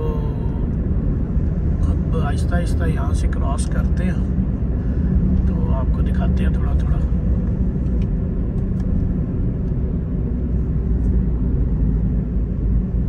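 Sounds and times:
car interior road rumble: 0.0 - 13.0.

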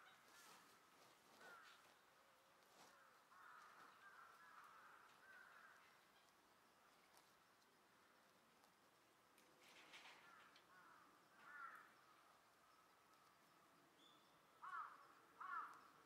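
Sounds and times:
faint crow cawing: 0.0 - 7.3, 9.8 - 12.8, 14.6 - 16.0.

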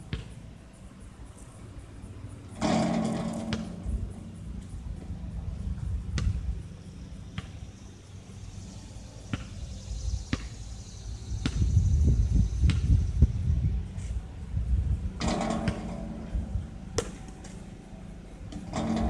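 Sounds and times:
basketball bouncing on concrete: 0.1 - 0.3, 6.2 - 6.4, 11.4 - 11.7
wind rumble on microphone: 2.7 - 7.2, 9.5 - 17.4.

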